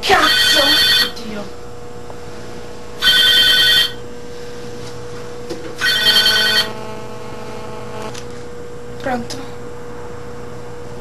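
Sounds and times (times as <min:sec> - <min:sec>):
telephone ringing: 0:00.1 - 0:01.4, 0:03.0 - 0:04.0, 0:05.8 - 0:06.9.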